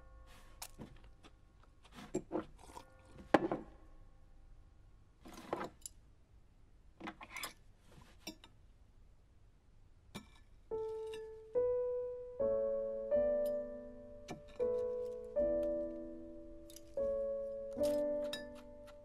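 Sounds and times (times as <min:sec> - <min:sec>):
faint held music chord: 0:00.0 - 0:01.3, 0:10.9 - 0:19.0.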